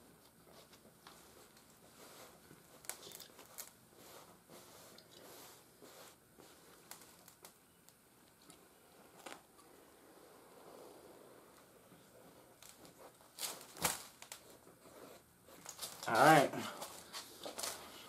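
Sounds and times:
hands rubbing fabric: 0.4 - 6.9
charcoal scratching on leather: 1.9 - 6.6.

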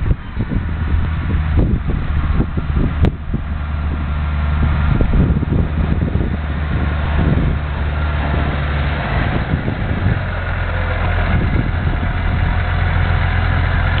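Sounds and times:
tractor diesel engine running: 0.0 - 14.0.

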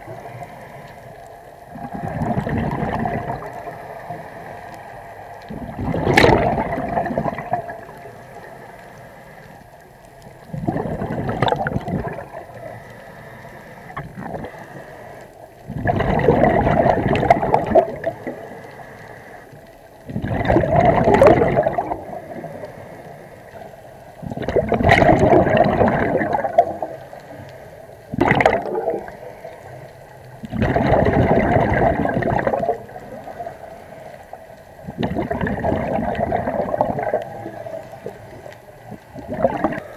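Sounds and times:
exhaled bubbles underwater: 0.0 - 8.8, 10.1 - 13.0, 13.8 - 14.9, 15.5 - 18.7, 20.0 - 39.9
breathing through regulator: 12.6 - 15.3, 18.3 - 19.6.

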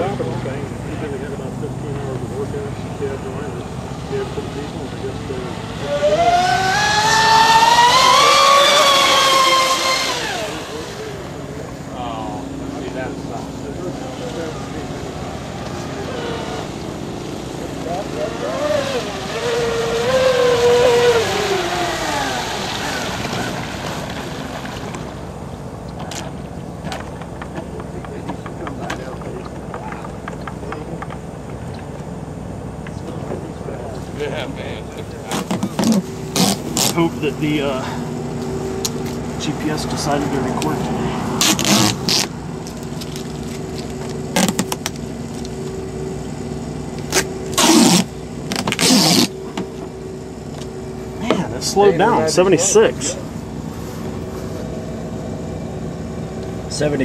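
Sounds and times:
water and wind hiss: 0.0 - 26.6
electric boat motor whine: 0.0 - 57.0
steady engine hum: 0.0 - 57.0
tape ripping off a roll: 35.3 - 37.0, 41.4 - 45.5, 47.0 - 49.4.

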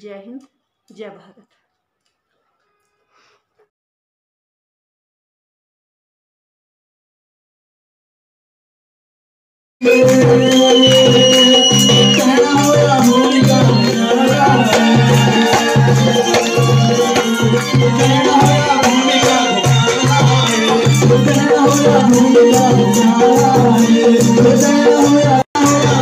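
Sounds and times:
crowd clapping along: 9.8 - 22.1
devotional folk music: 9.8 - 26.0
steady drum beat: 9.8 - 26.0.

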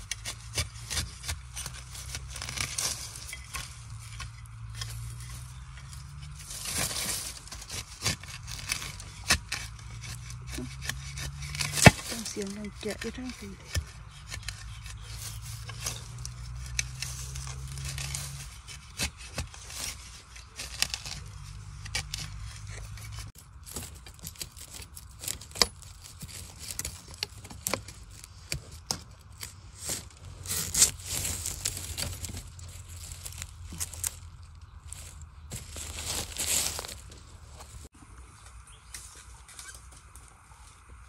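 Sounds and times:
metal bar and knife scraping: 0.0 - 34.2
dry leaf litter rustling: 1.6 - 9.2, 11.6 - 13.7, 23.4 - 37.9.

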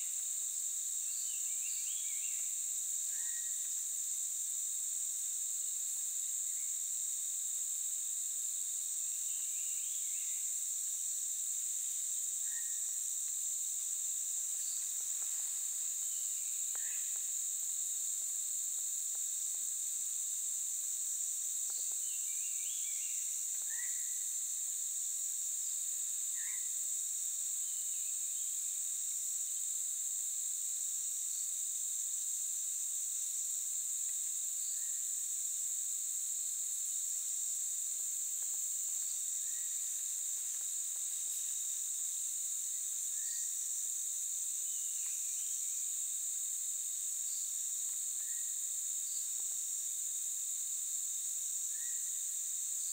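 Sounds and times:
insect chirps: 0.0 - 52.9
insect chorus shrilling: 0.0 - 52.9
thin insect whine: 0.0 - 52.9.

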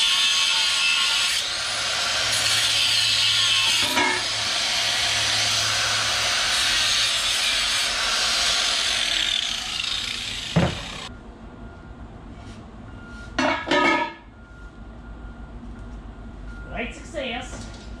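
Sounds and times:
angle grinder cutting metal: 0.0 - 11.1
thump: 10.6 - 10.9.

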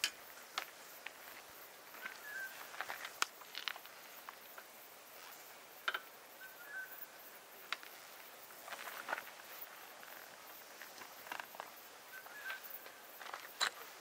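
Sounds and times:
shuffling footsteps: 0.5 - 4.4, 7.8 - 14.0.

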